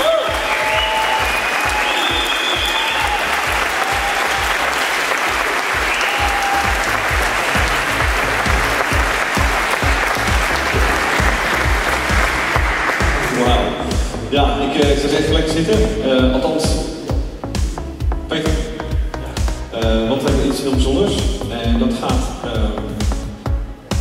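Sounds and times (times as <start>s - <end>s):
crowd applauding: 0.0s - 14.0s
music with bass beat: 5.8s - 24.0s.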